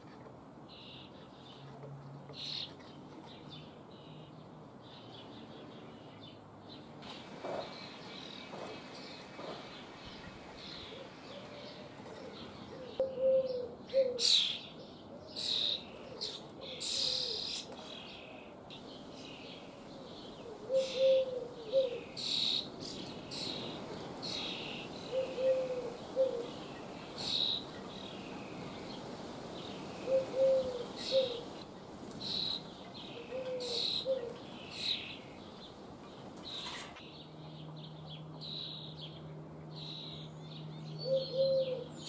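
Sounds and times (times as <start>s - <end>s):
young starlings begging calls: 12.8s - 36.9s.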